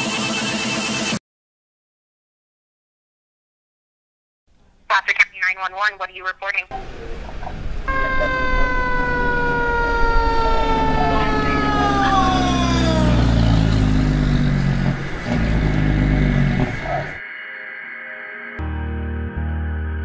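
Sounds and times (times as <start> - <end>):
low engine rumble: 6.7 - 17.2
fire engine siren: 6.8 - 17.2.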